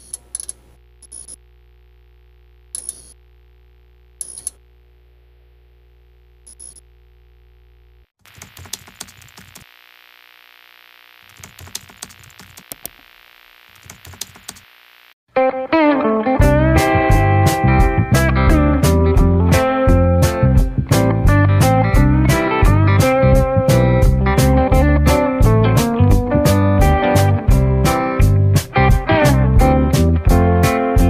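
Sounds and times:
steady low hum: 0.0 - 8.1
sharp clicks: 8.2 - 9.7, 11.3 - 13.0, 13.7 - 14.6
hiss with crackling clicks: 8.3 - 9.7, 13.7 - 14.8
guitar music: 15.3 - 31.0.

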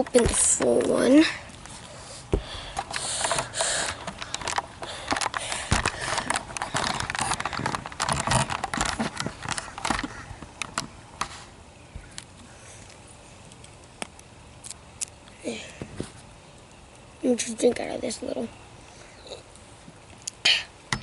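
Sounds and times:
camera handling rubbing and clicks: 2.8 - 11.4.

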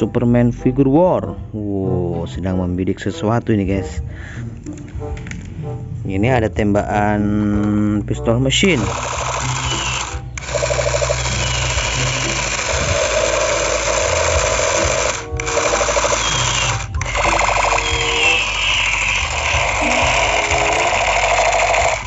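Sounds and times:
toy gun machine-gun buzz: 8.8 - 22.0.

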